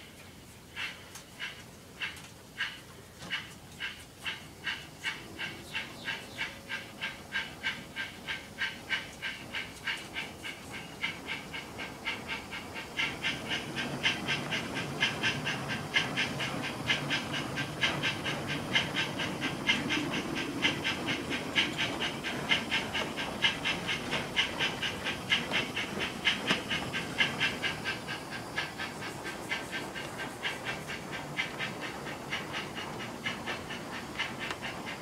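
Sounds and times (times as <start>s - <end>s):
low rumble of train on track: 0.0s - 35.0s
model steam locomotive chuffs: 0.0s - 35.0s.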